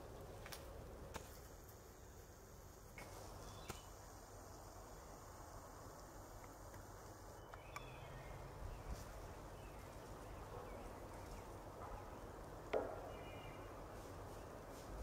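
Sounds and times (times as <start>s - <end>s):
faint bird chirps: 7.3s - 9.0s.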